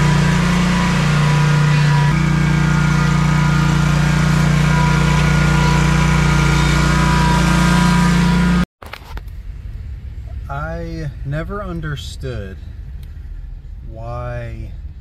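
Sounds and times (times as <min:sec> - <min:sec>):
mower engine driving past: 0:00.0 - 0:08.7.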